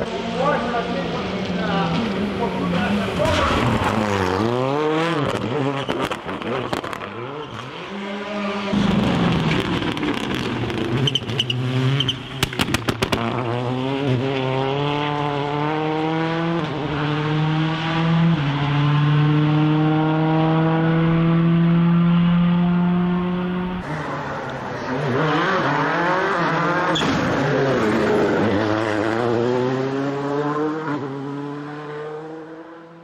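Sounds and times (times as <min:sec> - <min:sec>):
car accelerating hard: 0:00.0 - 0:33.0
rally car engine revving: 0:00.0 - 0:33.0
exhaust pops and crackles: 0:05.2 - 0:07.2, 0:08.7 - 0:11.5, 0:12.3 - 0:13.4.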